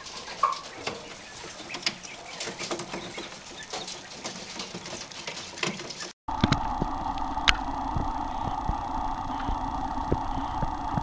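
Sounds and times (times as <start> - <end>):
birds pecking on wire floor: 0.0 - 6.9
quail chicks chirping: 0.0 - 11.0
steady hum: 6.3 - 11.0.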